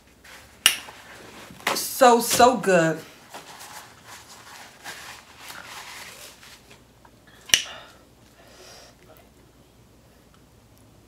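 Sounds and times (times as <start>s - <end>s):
paper napkin rustling: 0.0s - 6.9s.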